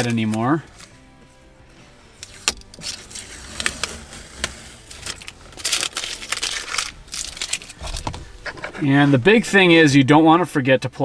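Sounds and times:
tape peeling off plastic: 0:02.2 - 0:08.8.

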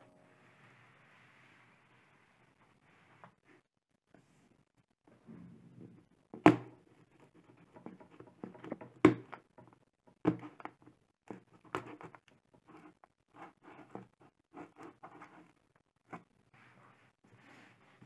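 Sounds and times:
scratching and scraping of tape: 0:06.9 - 0:09.6, 0:10.3 - 0:18.0.

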